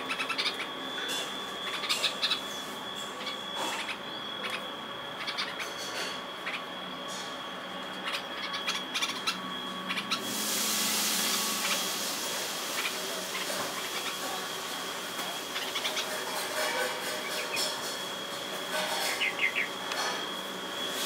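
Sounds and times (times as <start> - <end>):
birds chirping: 0.0 - 10.4, 11.2 - 20.5
thin high whine: 0.0 - 21.0
hiss: 10.2 - 13.4.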